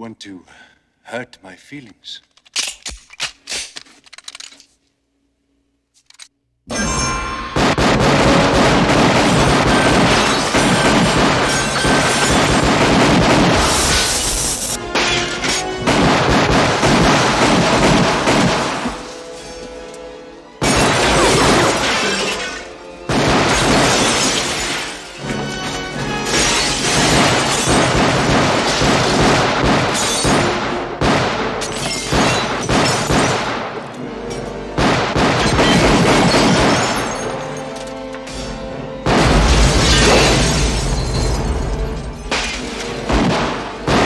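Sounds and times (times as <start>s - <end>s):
glass shattering: 6.7s - 7.7s, 9.4s - 12.6s, 13.7s - 15.7s, 20.6s - 22.7s, 23.5s - 28.0s, 29.9s - 30.4s, 31.6s - 33.6s, 35.4s - 38.6s, 39.5s - 43.0s
pistol shots: 7.5s - 19.1s, 23.0s - 24.7s, 26.7s - 33.9s, 34.8s - 37.4s.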